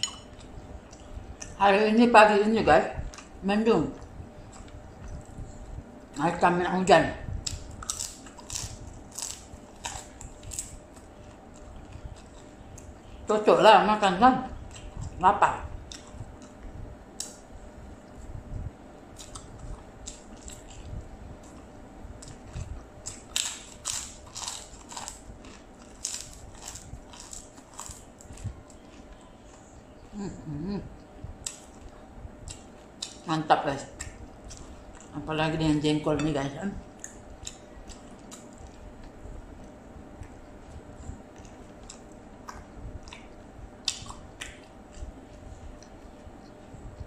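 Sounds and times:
person chewing crunchy food: 7.4s - 13.2s, 19.1s - 29.6s, 37.0s - 47.0s
cracker crunching while chewed: 7.5s - 12.9s, 22.2s - 29.6s.

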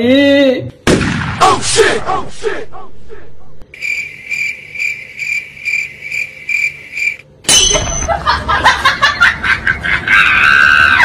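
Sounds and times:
cricket chirping: 3.7s - 8.1s.

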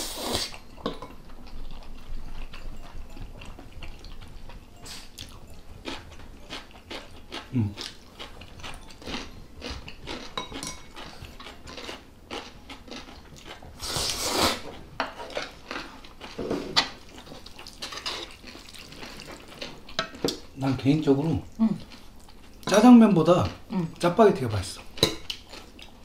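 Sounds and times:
chewing: 0.4s - 20.6s, 21.2s - 22.7s, 24.8s - 26.0s
utensils clicking against bowls: 10.2s - 11.6s
noodle slurp: 13.8s - 14.6s.

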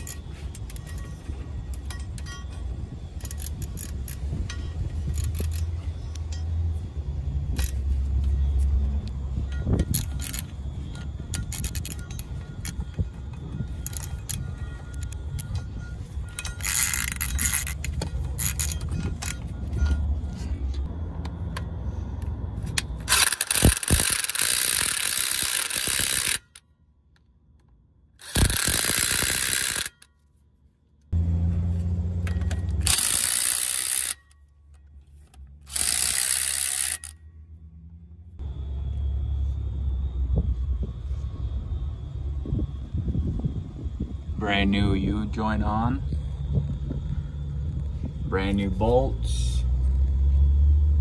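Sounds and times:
socket ratchet clicking: 3.2s - 6.4s, 9.7s - 13.0s, 13.6s - 15.6s, 16.3s - 19.5s, 22.8s - 26.6s, 28.2s - 30.1s, 32.2s - 37.2s.

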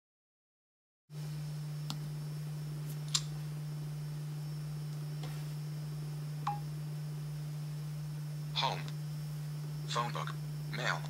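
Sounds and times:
steady low hum: 1.1s - 11.0s.

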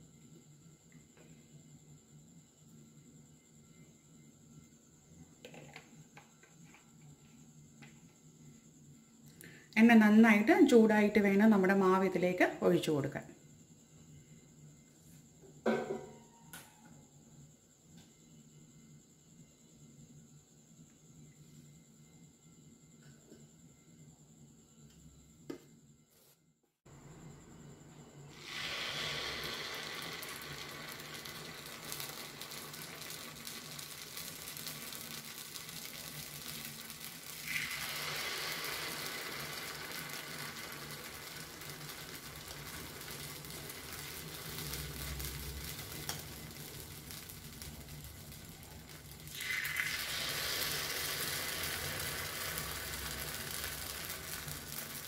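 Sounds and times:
oil sizzling in a pan: 27.0s - 55.0s.

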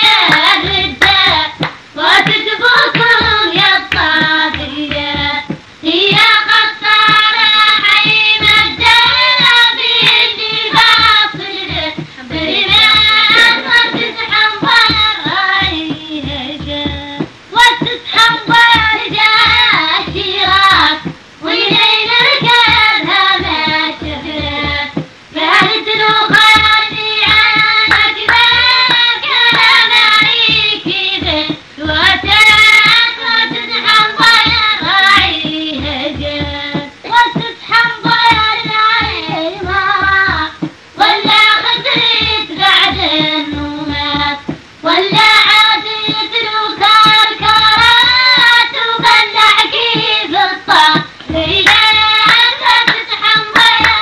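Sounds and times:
high solo voice singing: 0.0s - 54.0s
music beat: 0.0s - 54.0s.

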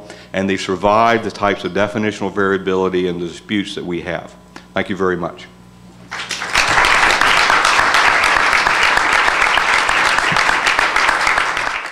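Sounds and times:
audience applauding: 6.1s - 11.9s.

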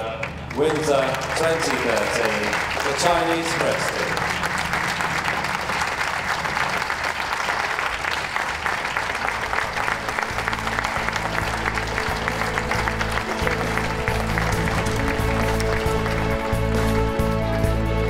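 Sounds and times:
audience applauding: 0.0s - 17.7s
music: 9.0s - 18.0s.

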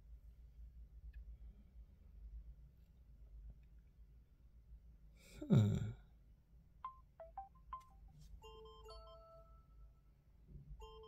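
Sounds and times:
bell-like chime melody ringtone: 6.8s - 10.0s, 10.8s - 11.0s.

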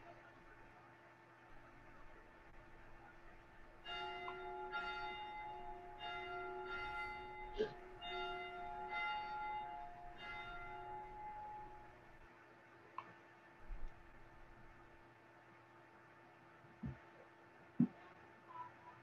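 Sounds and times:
bell ringing: 3.0s - 12.1s.

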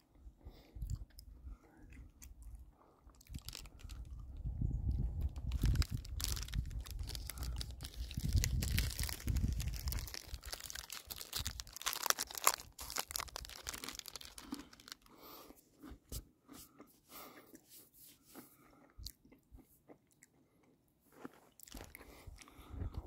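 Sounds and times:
wind rumble on microphone: 0.7s - 11.7s, 22.2s - 23.0s
plastic wrapper crinkling: 3.3s - 4.1s, 5.2s - 15.2s.

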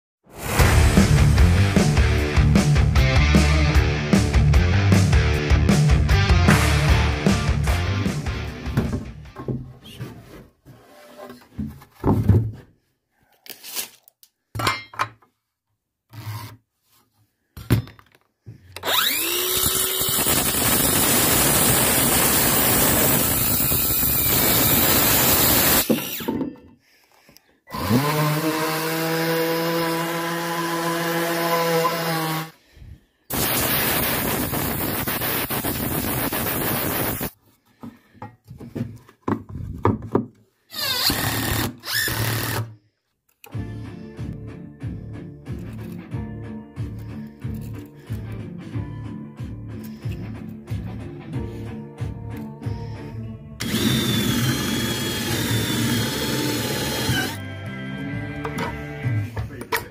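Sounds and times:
circular saw cutting wood: 18.8s - 26.3s, 27.7s - 32.6s, 53.6s - 57.5s
wood knocking: 37.8s - 40.4s.

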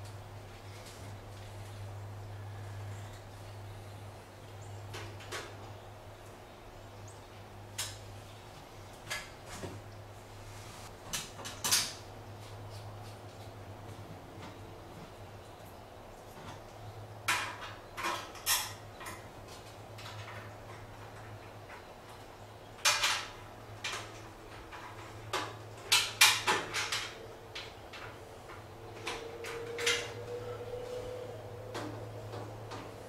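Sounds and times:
steady low hum: 0.0s - 11.1s
clicks and knocks on sheet metal: 22.8s - 30.2s.

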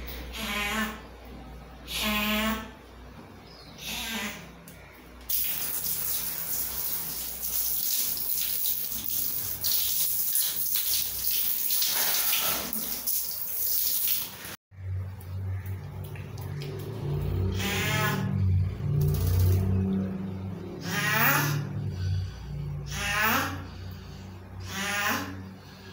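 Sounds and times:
shower spray hissing: 5.3s - 14.6s
low hum: 14.8s - 24.8s.

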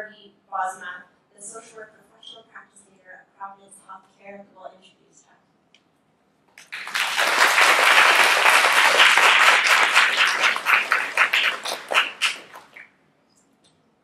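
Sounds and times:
audience applauding: 6.6s - 12.8s.

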